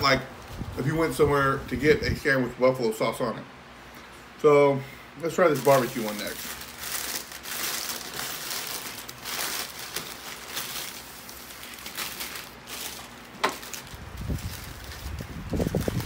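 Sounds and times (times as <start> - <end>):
paper wrapper crinkling: 5.4 - 16.0
sharp paper crackle: 5.4 - 16.0.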